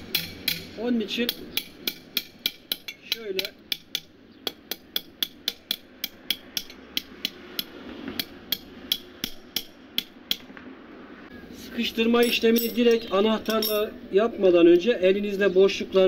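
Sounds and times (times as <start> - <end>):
hammer tapping metal: 0.0 - 10.5.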